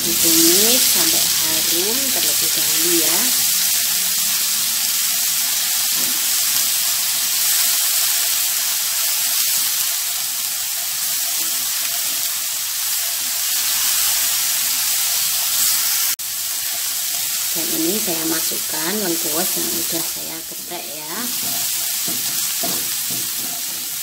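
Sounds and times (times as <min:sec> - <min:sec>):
spice paste sizzling in oil: 0:00.0 - 0:24.0
wooden spatula stirring: 0:20.6 - 0:24.0.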